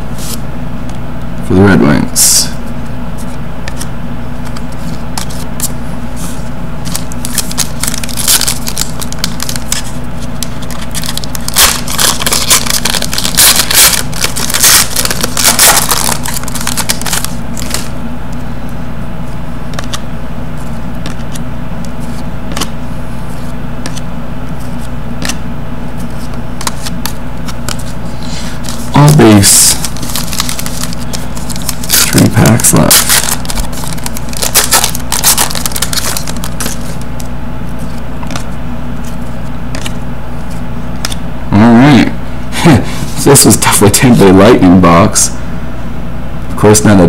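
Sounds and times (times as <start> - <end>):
cards flipped by hand: 3.2 - 18.4, 19.7 - 20.0, 20.6 - 25.4, 26.0 - 41.2
foil wrapper crinkling: 6.8 - 17.9, 27.5 - 37.1.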